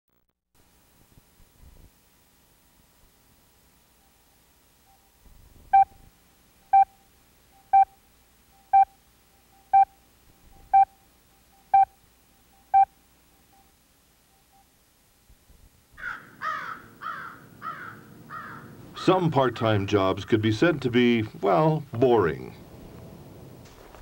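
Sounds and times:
short countdown beeps: 6.7 - 12.9.

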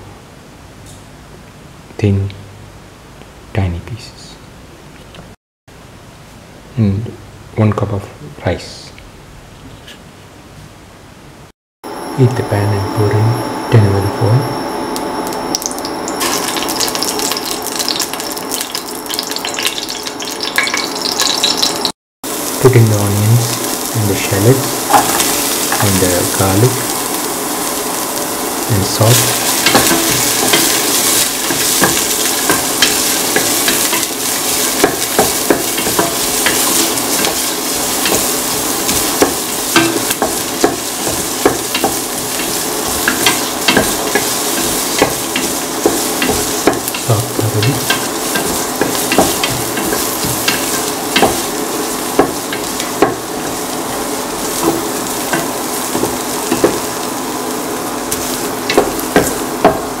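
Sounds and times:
onions sizzling in hot oil: 11.9 - 60.0
spatula scraping a pan: 29.1 - 56.9.

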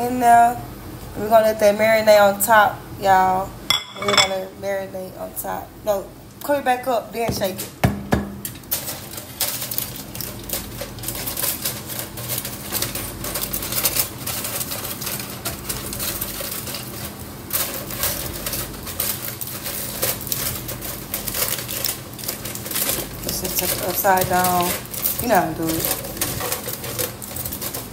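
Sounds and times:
aluminium foil crinkling: 8.5 - 27.9.

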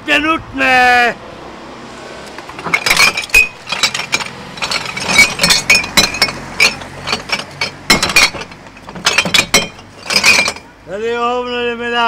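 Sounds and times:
glass bottles clinking: 2.5 - 10.8.

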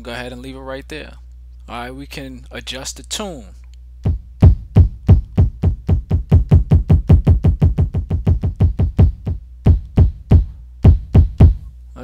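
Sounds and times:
kick drum hits: 4.0 - 11.7.

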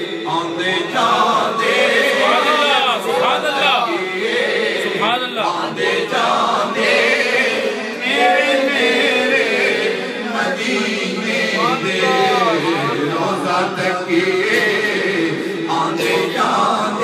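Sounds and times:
man singing unaccompanied: 0.0 - 6.8, 8.0 - 17.0.

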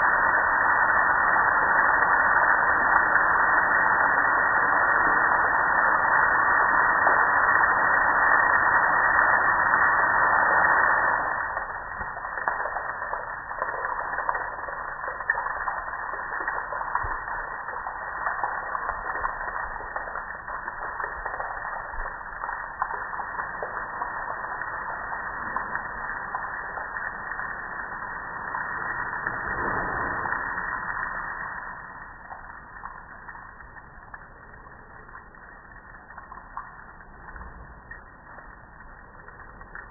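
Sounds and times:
water spraying onto grill: 0.0 - 31.8
water trickling and dripping: 0.0 - 39.9.

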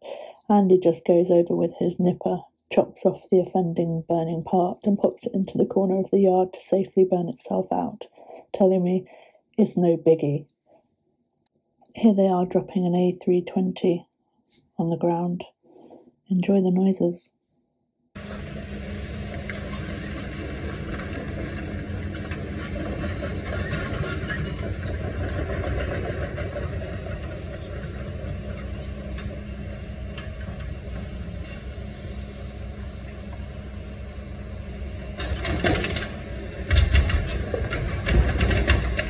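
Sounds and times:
metal scraping and creaking: 18.2 - 32.2
excavator diesel engine running: 18.2 - 39.0.

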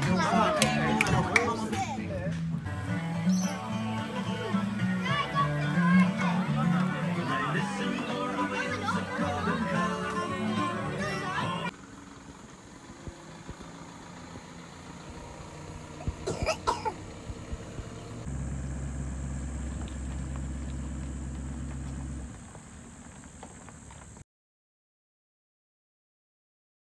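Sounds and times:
truck engine running: 0.0 - 24.2
cough-like vocal sound: 16.0 - 17.0.

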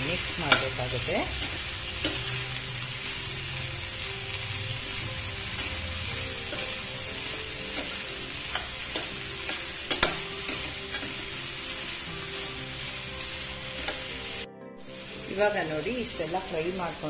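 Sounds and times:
metal spatula scraping a pan: 0.0 - 11.4
food sizzling in oil: 0.0 - 17.0.

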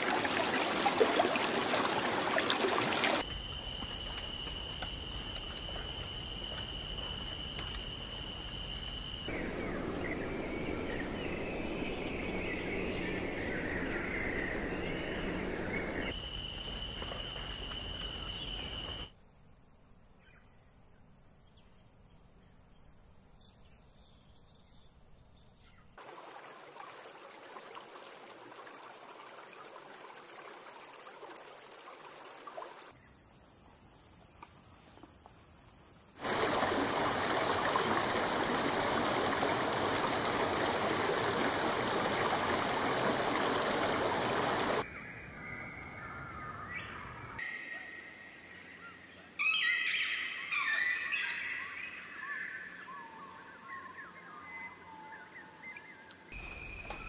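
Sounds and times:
rushing water: 0.0 - 19.1, 26.0 - 32.9, 36.2 - 44.9
birds chirping: 9.0 - 19.0.

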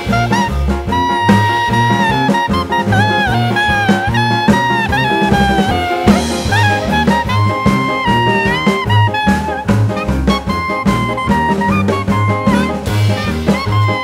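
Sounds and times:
swing jazz music: 0.0 - 14.0.

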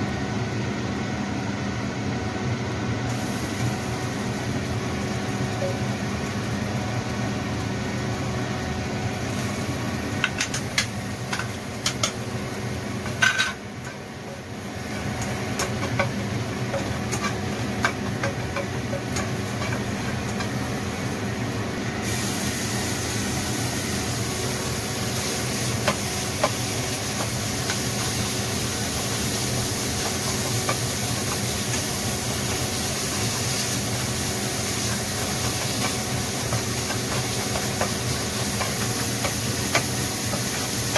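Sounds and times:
steady machine hum: 0.0 - 40.9
food sizzling in hot oil: 3.1 - 40.9
ingredients clicking into pan: 10.2 - 12.2.

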